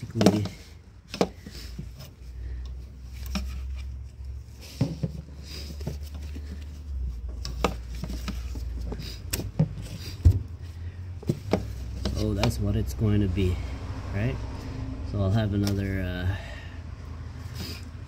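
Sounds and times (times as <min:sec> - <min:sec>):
hands handling rubber hoses: 0:00.0 - 0:13.0, 0:15.4 - 0:16.1, 0:17.4 - 0:18.0.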